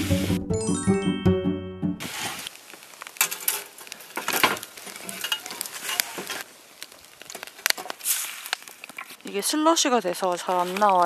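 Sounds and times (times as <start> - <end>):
meat sizzling in a pot: 2.0 - 9.4
sharp crackles: 2.0 - 11.0.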